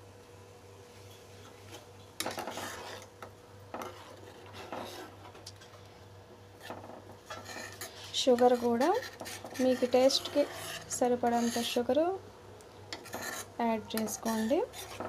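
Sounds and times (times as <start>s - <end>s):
faint steady hum: 0.0s - 15.0s
steel spoon scraping a pan: 2.2s - 3.2s, 3.8s - 5.2s, 6.6s - 11.9s, 12.9s - 15.0s.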